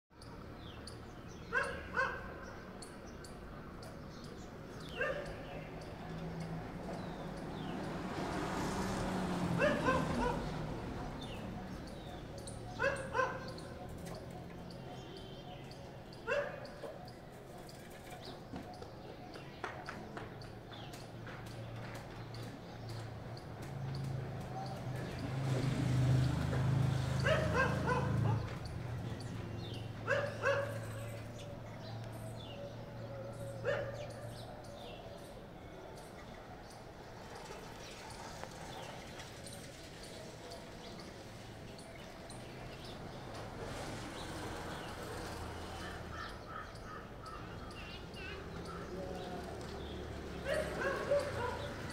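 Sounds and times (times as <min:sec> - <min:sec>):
small birds chirping: 0:00.1 - 0:51.9
dog barking: 0:01.5 - 0:02.5, 0:04.9 - 0:05.6, 0:09.6 - 0:10.6, 0:12.7 - 0:13.8, 0:16.2 - 0:17.2, 0:27.2 - 0:28.5, 0:30.0 - 0:31.0, 0:33.6 - 0:34.4, 0:50.4 - 0:51.9.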